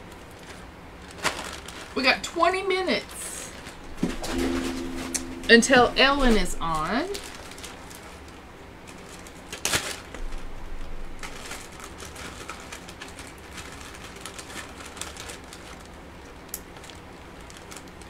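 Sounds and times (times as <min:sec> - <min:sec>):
plastic bag rustling and crinkling: 0:00.0 - 0:02.2, 0:02.9 - 0:04.1, 0:06.3 - 0:18.0.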